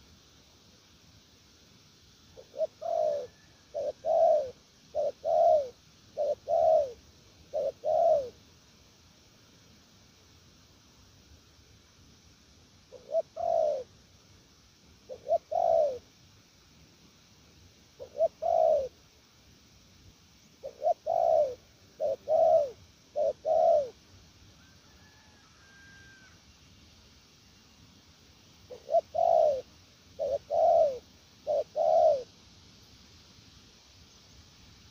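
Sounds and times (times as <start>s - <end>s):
dove cooing: 2.4s - 8.4s, 12.9s - 13.9s, 15.0s - 16.1s, 18.0s - 19.0s, 20.6s - 24.0s, 24.6s - 26.4s, 28.7s - 32.3s.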